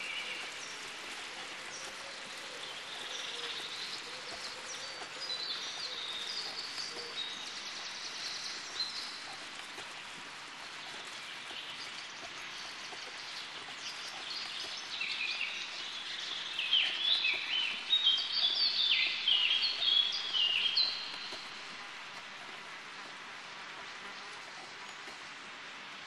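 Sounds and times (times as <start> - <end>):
steady outdoor hiss: 0.0 - 26.0
songbird singing whistled notes: 13.9 - 21.6.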